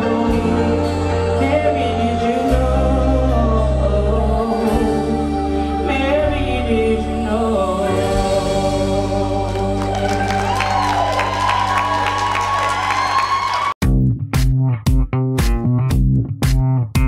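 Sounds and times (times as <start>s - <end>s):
woman singing into a microphone: 0.0s - 10.4s
music with held chords and bass: 0.0s - 12.1s, 13.8s - 17.0s.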